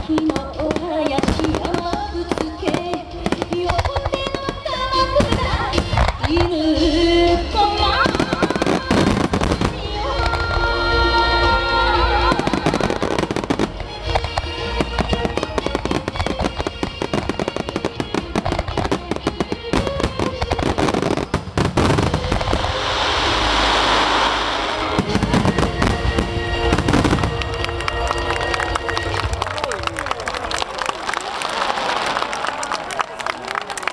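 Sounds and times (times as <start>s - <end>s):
music: 0.0s - 31.0s
firework shells bursting: 12.8s - 28.0s.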